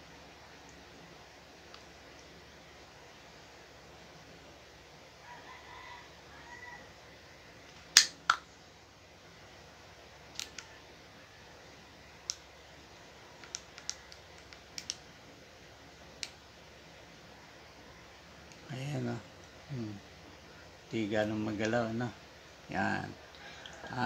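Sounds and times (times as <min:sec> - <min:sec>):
distant rooster crowing: 0:05.2 - 0:07.6, 0:22.9 - 0:24.0.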